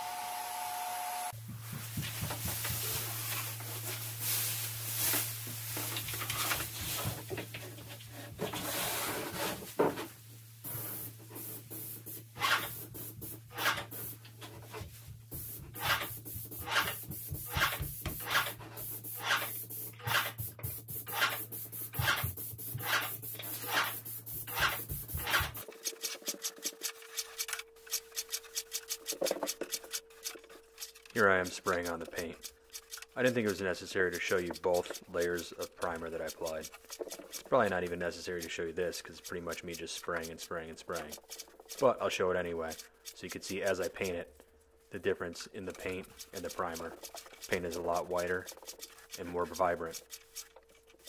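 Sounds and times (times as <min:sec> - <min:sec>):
sanding sponge rubbing wood: 0:45.6 - 0:50.5.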